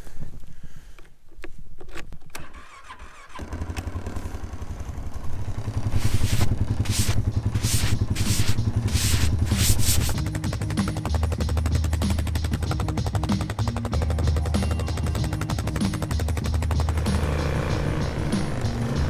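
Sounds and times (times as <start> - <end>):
atv engine idling: 3.2 - 9.6, 10.2 - 19.0
snow swept off by hand: 5.8 - 10.2.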